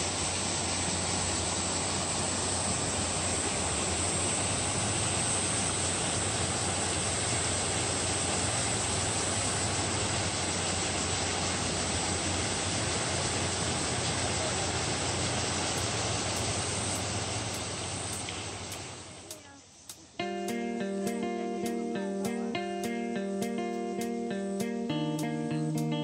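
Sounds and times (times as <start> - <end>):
mountain stream rushing: 0.0 - 19.2.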